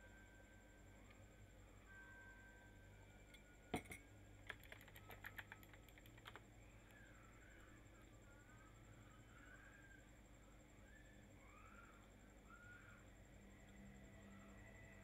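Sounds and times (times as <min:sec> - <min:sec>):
keyboard typing: 0:04.4 - 0:06.4.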